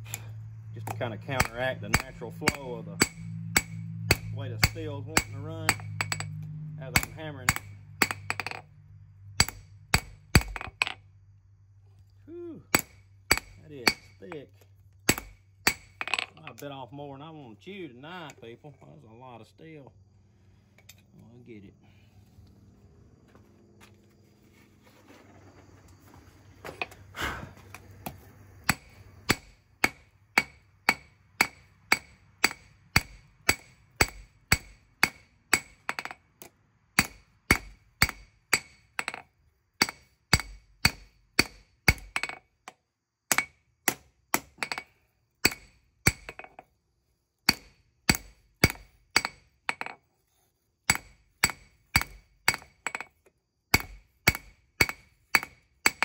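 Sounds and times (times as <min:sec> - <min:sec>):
low hum: 0:00.0 - 0:16.6
hammer striking steel on anvil: 0:00.1 - 0:08.7, 0:09.4 - 0:11.0, 0:12.7 - 0:14.4, 0:15.1 - 0:16.3, 0:28.6 - 0:36.2, 0:37.0 - 0:39.2, 0:39.8 - 0:42.4, 0:43.3 - 0:46.5, 0:47.5 - 0:50.0, 0:50.9 - 0:53.1, 0:53.7 - 0:56.0.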